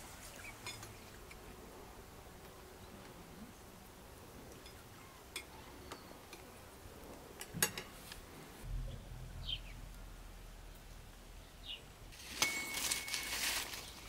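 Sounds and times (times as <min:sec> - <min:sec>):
low steady rumble: 0:08.2 - 0:12.2
high bird chirp: 0:08.8 - 0:09.8.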